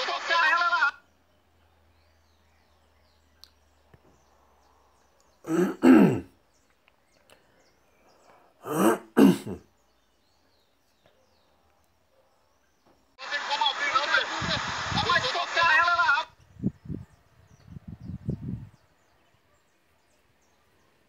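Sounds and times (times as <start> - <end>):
person clearing throat: 5.5 - 6.3, 8.6 - 9.6.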